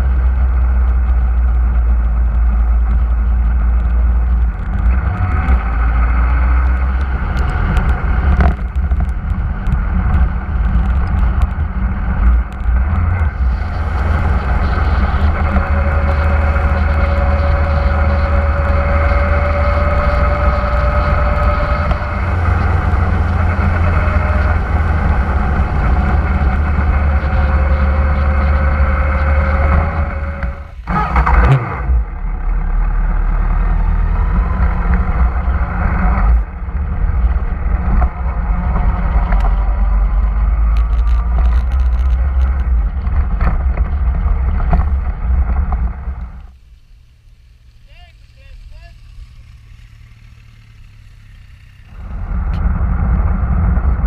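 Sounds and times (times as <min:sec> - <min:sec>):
wind rumble over microphone: 0:00.0 - 0:47.9, 0:49.0 - 0:54.0
motorcycle engine drone: 0:00.0 - 0:54.0.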